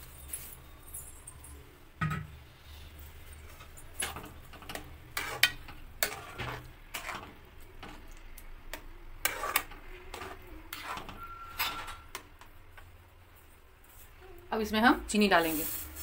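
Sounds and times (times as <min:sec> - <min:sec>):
metal spatula scraping a pan: 0:03.3 - 0:12.5.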